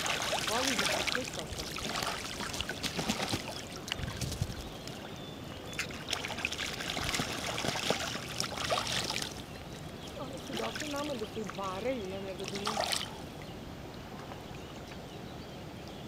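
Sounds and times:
wings beating on water: 0.0s - 5.0s, 5.8s - 9.4s, 12.4s - 13.1s
geese splashing in water: 0.0s - 5.1s, 5.7s - 13.3s.

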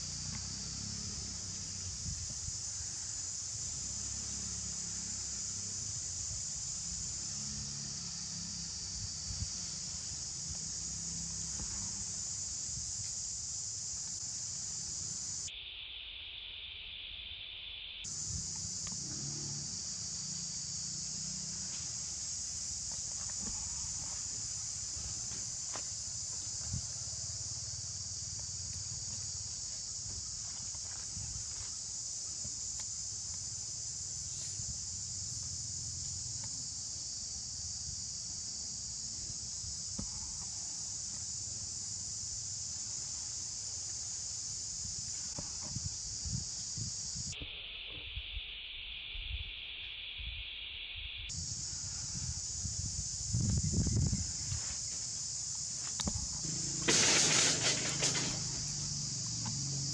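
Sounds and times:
high-pitched insect chorus: 0.0s - 59.9s
low insect buzz: 0.0s - 59.9s.

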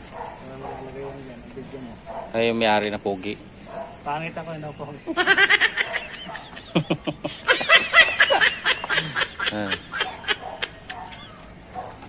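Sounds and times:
people laughing: 4.6s - 11.6s.

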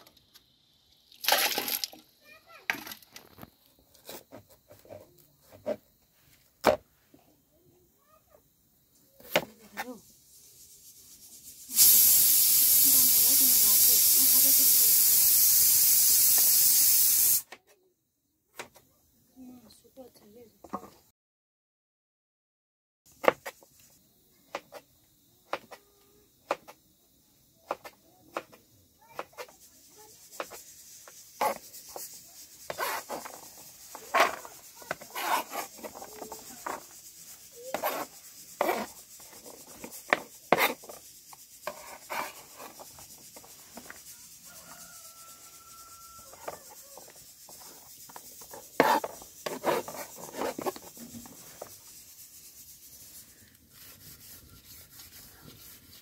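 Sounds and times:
knife blade scraping board: 27.7s - 28.6s, 29.2s - 29.5s, 30.4s - 30.6s, 31.4s - 31.6s, 32.7s - 36.9s, 37.7s - 41.0s, 41.6s - 44.0s, 46.4s - 51.7s.

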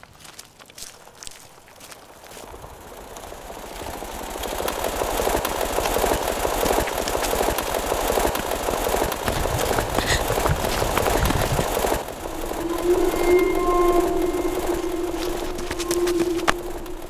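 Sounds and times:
rapid mechanical fluttering clatter: 2.2s - 17.0s.

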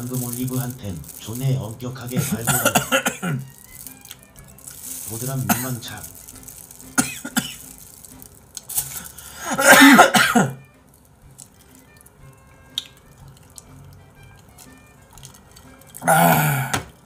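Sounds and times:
faint background music: 0.0s - 17.0s
man coughing: 2.2s - 3.4s, 7.0s - 7.6s, 9.4s - 10.6s.

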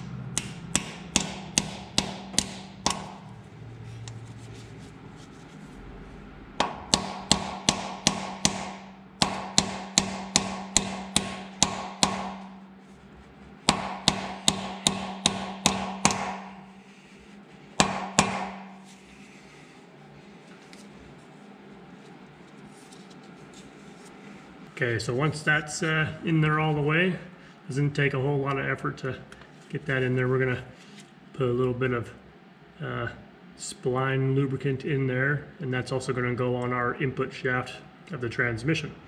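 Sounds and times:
hammer striking metal: 0.0s - 3.3s, 6.6s - 12.7s, 13.7s - 16.8s, 17.8s - 18.9s.

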